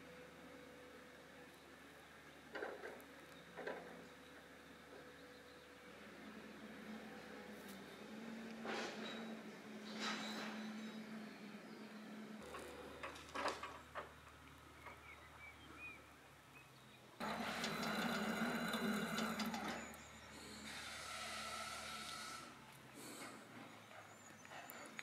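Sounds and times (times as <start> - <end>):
cable winch whirring: 17.2 - 22.6.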